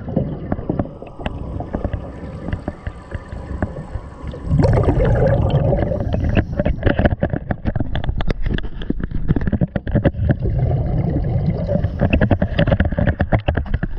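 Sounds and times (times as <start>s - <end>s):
low underwater rumble: 0.0s - 8.1s
muffled underwater sloshing: 0.0s - 13.9s.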